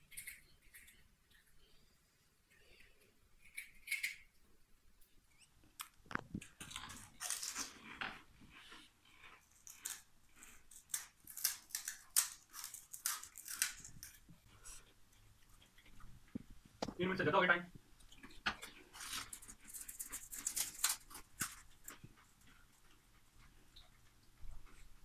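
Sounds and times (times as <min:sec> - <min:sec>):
crisp shells crunching in chewing: 0:05.8 - 0:14.8, 0:18.1 - 0:22.6.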